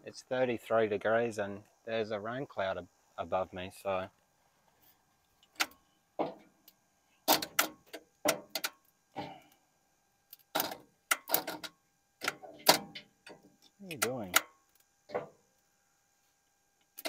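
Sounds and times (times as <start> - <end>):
sharp clicks and metallic knocks: 5.4 - 9.4, 10.3 - 15.4.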